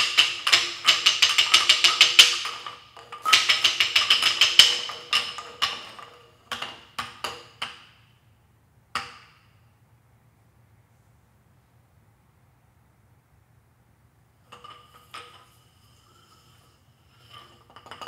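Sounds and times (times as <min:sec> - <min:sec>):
wooden sticks clacking: 0:00.0 - 0:07.9.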